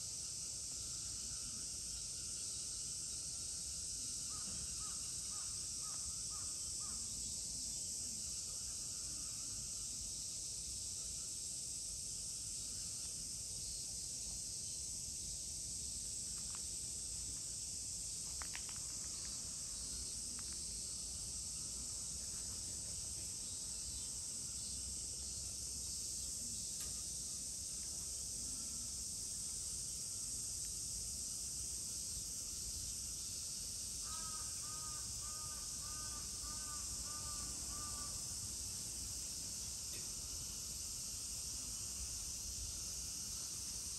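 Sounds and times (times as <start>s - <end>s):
insect chorus droning: 0.0s - 43.9s
faint clicks: 18.3s - 19.4s
crow cawing: 34.0s - 38.2s.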